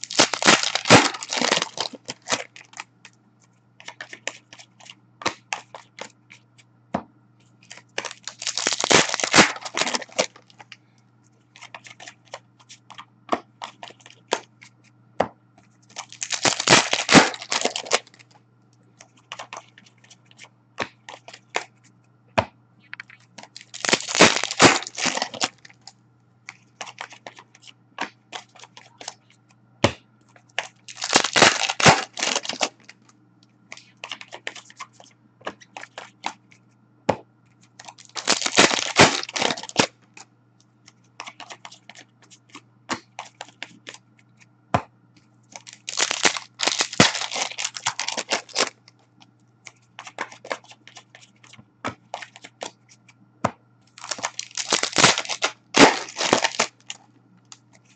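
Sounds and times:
card wrappers tearing and crinkling: 0.0s - 2.9s, 7.7s - 10.7s, 15.9s - 18.2s, 23.0s - 25.9s, 26.8s - 27.4s, 30.6s - 33.0s, 37.8s - 39.9s, 45.5s - 48.8s, 52.1s - 52.8s, 54.0s - 57.1s.

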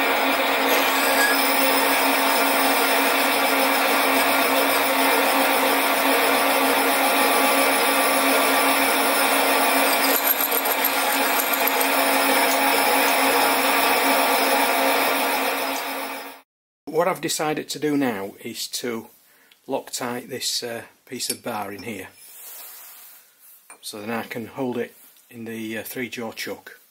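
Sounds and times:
reamer cutting metal: 0.0s - 16.2s
metal lathe motor and gear hum: 0.0s - 16.3s.

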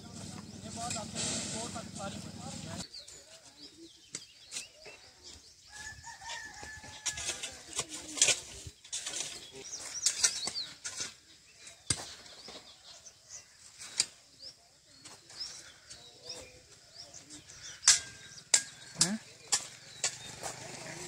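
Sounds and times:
small birds chirping: 0.0s - 21.0s
rooster crowing: 5.7s - 7.5s.

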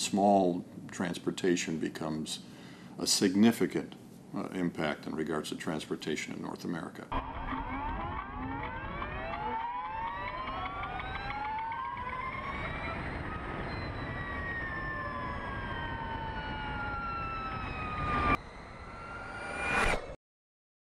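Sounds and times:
electric motorcycle whining: 7.1s - 19.9s
wind and road noise: 12.0s - 20.2s.

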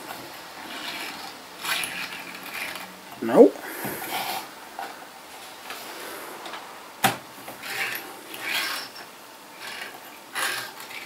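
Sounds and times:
short rubbing and scraping: 7.5s - 11.0s.

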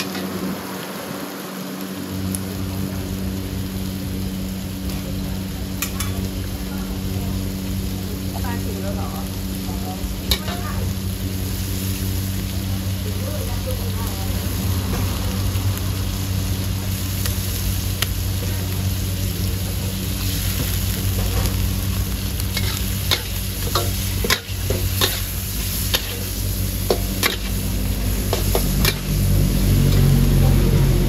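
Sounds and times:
food sizzling in a pan: 0.0s - 31.0s
steady low hum: 2.0s - 31.0s
metal spatula scraping a pan: 22.5s - 27.6s.

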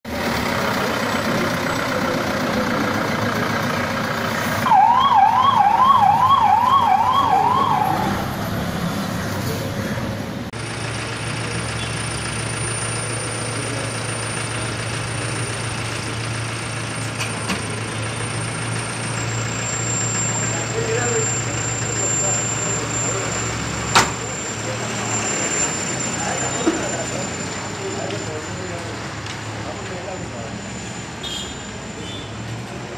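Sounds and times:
street noise: 0.0s - 32.9s
vehicle engine idling: 0.1s - 7.8s, 10.2s - 25.0s
siren wailing: 4.6s - 8.4s.

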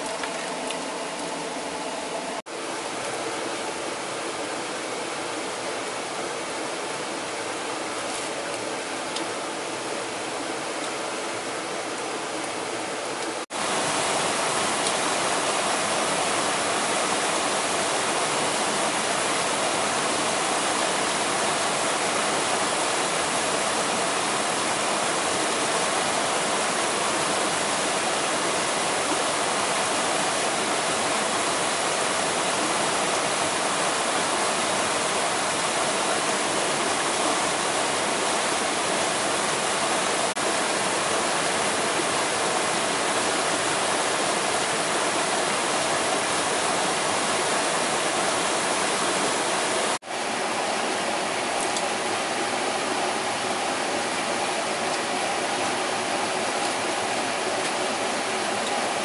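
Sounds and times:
flowing water rushing: 0.0s - 59.0s.

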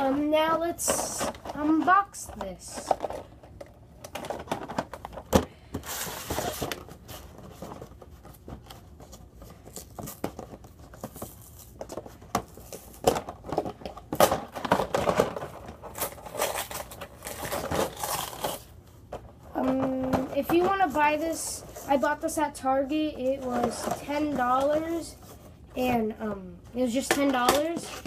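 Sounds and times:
cardboard rustling and tearing: 5.8s - 18.7s.

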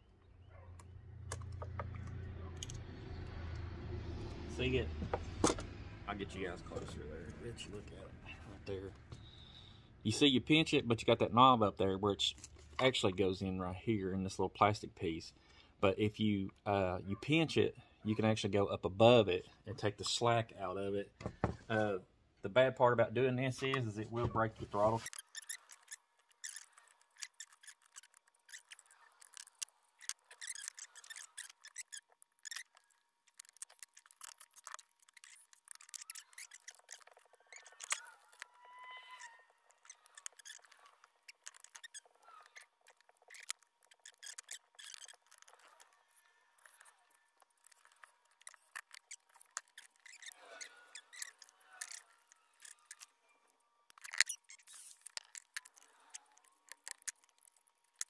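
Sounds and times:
small parts clicking and rattling: 24.7s - 58.0s.

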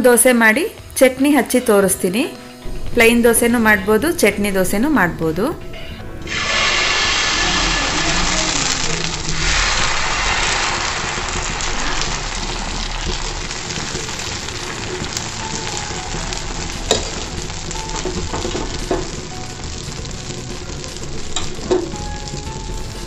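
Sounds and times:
batter sizzling on hot griddle: 6.2s - 23.0s.

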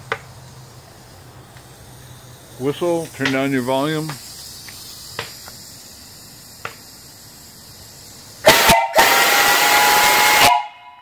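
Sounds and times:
faint steam hiss: 0.0s - 10.8s
steam whistle blast: 8.4s - 11.0s.

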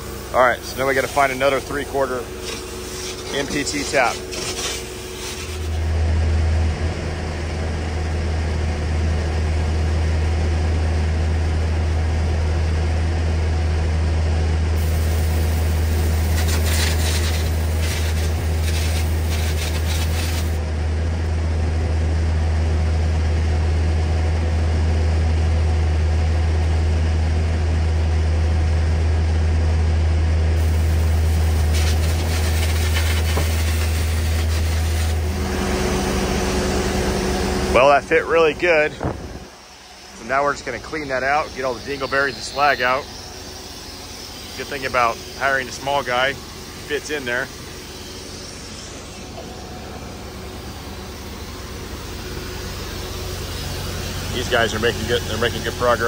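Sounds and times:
low machine drone: 0.0s - 56.0s
scratchy scraping: 2.4s - 5.9s, 16.3s - 20.6s.

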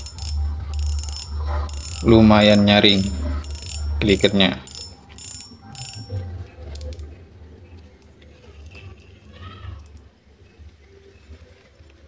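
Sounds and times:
reel rotor whirring: 0.0s - 7.0s
fishing reel clicks: 0.0s - 7.1s.

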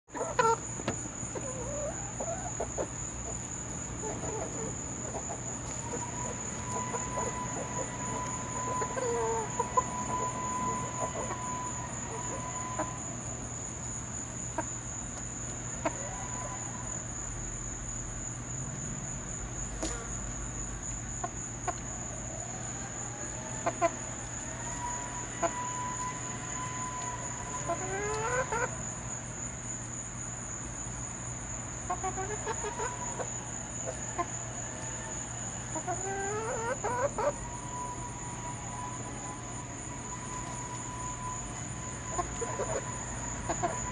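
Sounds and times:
chickens clucking: 0.1s - 13.1s, 14.4s - 16.9s, 23.6s - 28.9s, 31.8s - 43.9s
insects droning: 0.1s - 43.9s.

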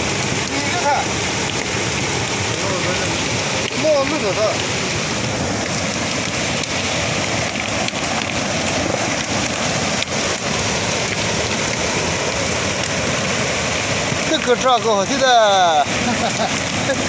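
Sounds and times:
flowing water rushing: 0.0s - 17.0s.

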